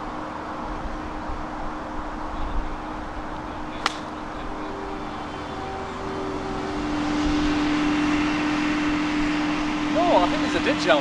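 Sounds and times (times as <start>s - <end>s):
vehicle engine humming: 0.0s - 11.0s
golf club striking ball: 3.8s - 4.2s.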